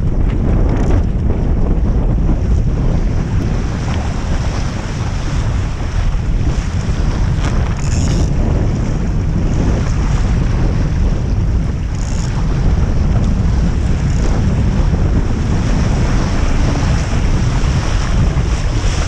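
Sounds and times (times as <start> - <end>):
water splashing along hull: 0.0 - 19.0
wind buffeting microphone: 0.0 - 19.0.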